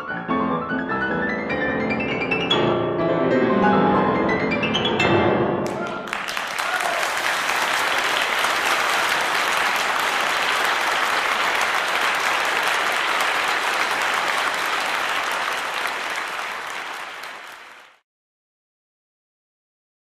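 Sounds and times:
audience applauding: 5.6s - 18.0s.

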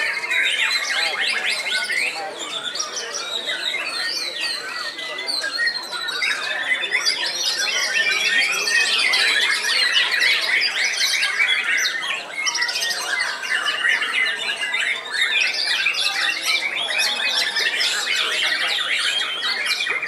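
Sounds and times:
other caged birds singing: 0.0s - 20.0s.

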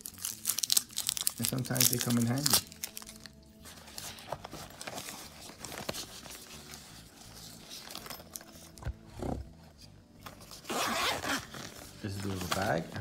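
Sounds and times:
fabric rubbing and rustling: 3.6s - 13.0s.

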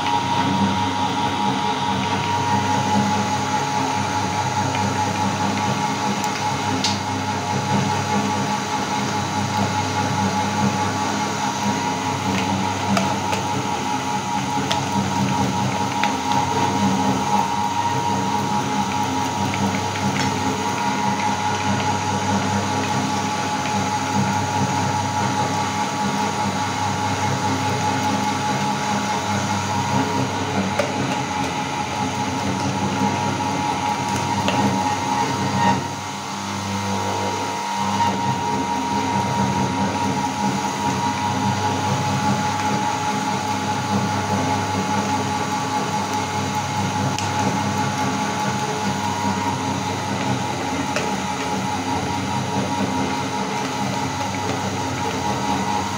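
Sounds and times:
meat grinder humming: 0.0s - 55.9s.

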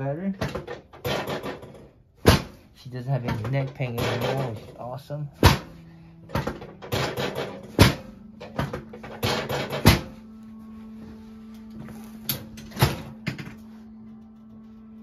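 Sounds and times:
chiropractic adjustment clunks: 0.0s - 10.3s, 11.6s - 14.8s.

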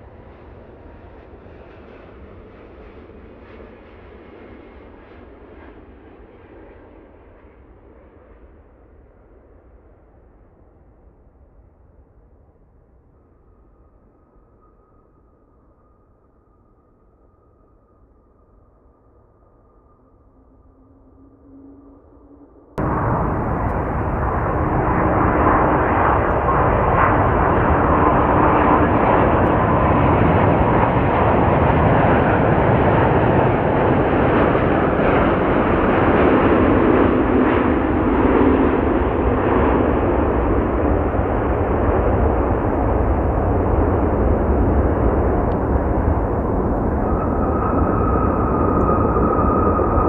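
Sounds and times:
jet engine whine: 0.0s - 11.2s, 18.7s - 50.0s
jet engine roar: 22.8s - 50.0s.

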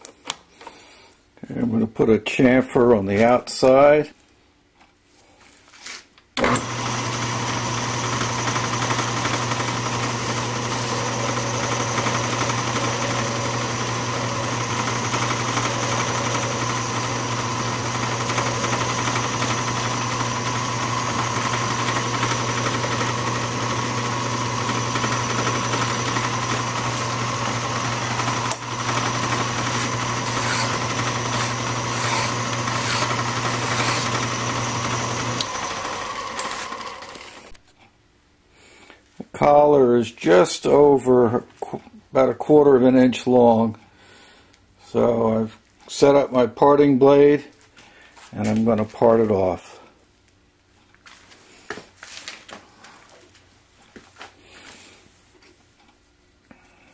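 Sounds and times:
metal lathe humming and whining: 6.4s - 37.5s
file scratching on metal: 29.2s - 34.3s.

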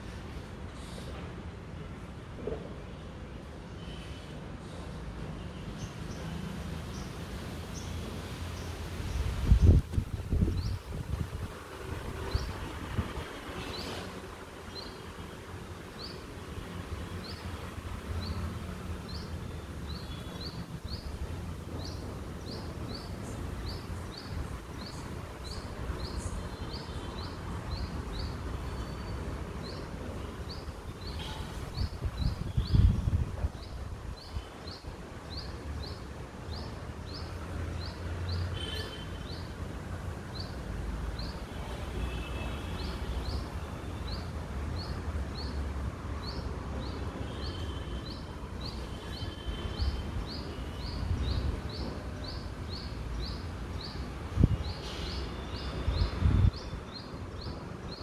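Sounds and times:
wind rumble on microphone: 9.0s - 13.3s, 31.7s - 34.2s, 55.8s - 56.8s.

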